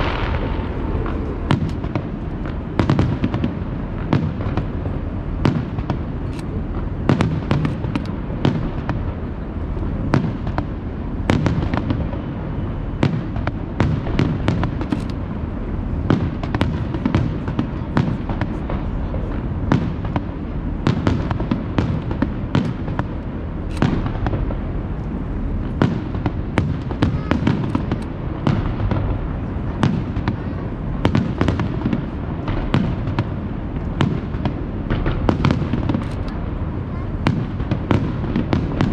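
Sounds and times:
firework shells bursting: 0.0s - 4.8s, 20.9s - 24.6s
low rumble: 0.0s - 5.4s.

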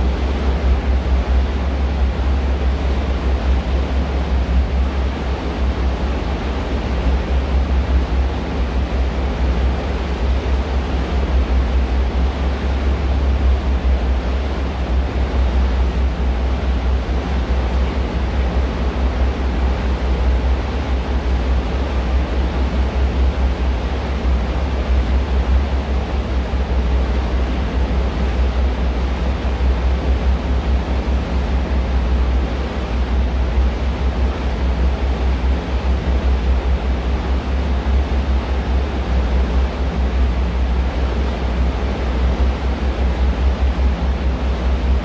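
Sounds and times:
boat engine rumble: 0.0s - 45.0s
rushing water noise: 0.0s - 45.0s.

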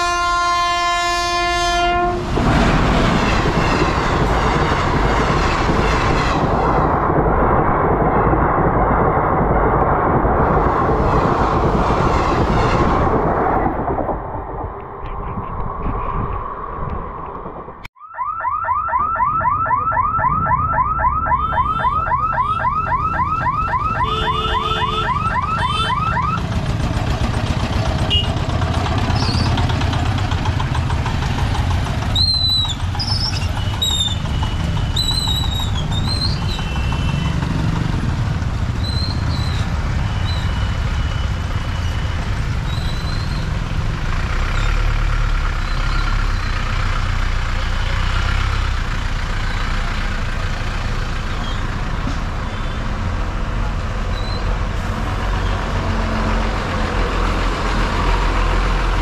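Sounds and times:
electronic warning siren: 18.0s - 26.4s
vehicle engines idling and moving: 19.0s - 59.0s.

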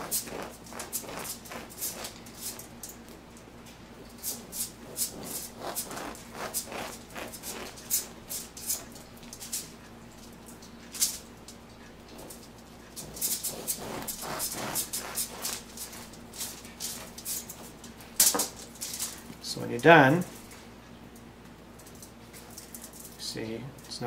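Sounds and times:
bread knife sawing through crust: 0.0s - 2.6s, 4.3s - 8.2s, 13.0s - 17.2s.

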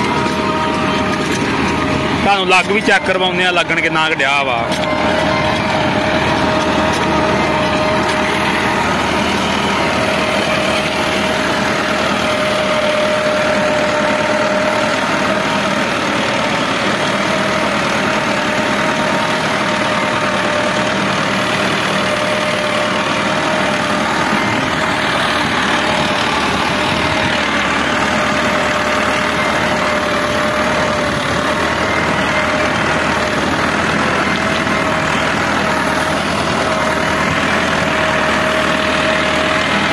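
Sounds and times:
constant whine: 0.0s - 39.9s
tractor diesel engine running: 0.0s - 39.9s.

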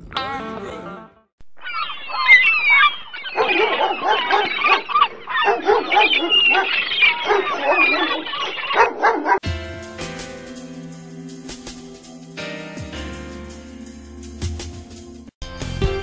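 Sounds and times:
animal calls: 1.6s - 9.4s
dogs barking: 1.6s - 9.4s.

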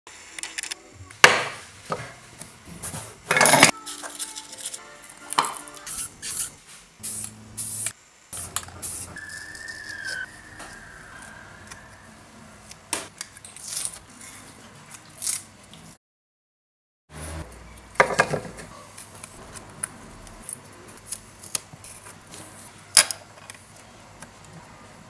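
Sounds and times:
brief high squeal: 9.2s - 12.8s.

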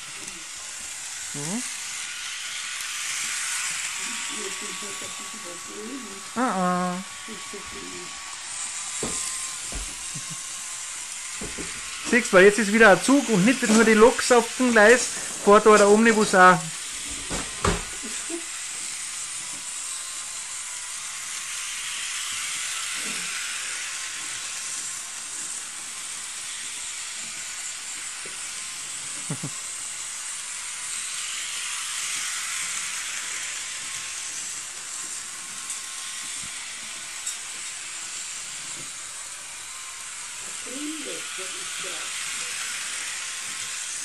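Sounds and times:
model train high hiss: 0.0s - 44.0s.

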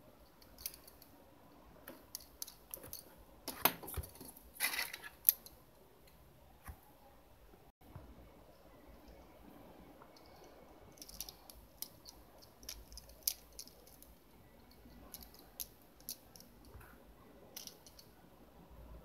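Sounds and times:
plastic toy parts clicking: 11.0s - 14.1s, 15.0s - 16.8s, 17.6s - 18.1s.

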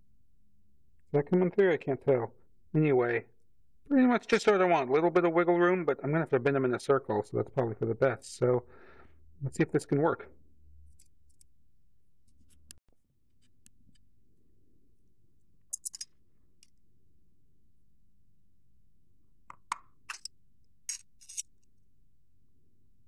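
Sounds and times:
tin snips cutting metal sheet: 20.9s - 21.5s.

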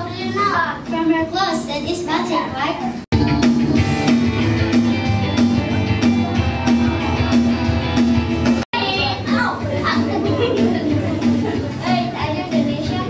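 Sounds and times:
music with repeating beat: 2.9s - 13.0s.

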